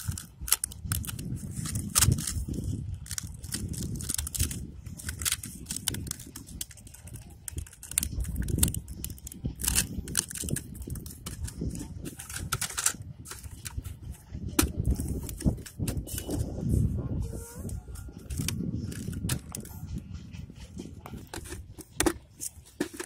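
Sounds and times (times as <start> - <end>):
plastic bottle crackling: 0.0 - 16.5, 18.2 - 19.7, 21.1 - 23.0.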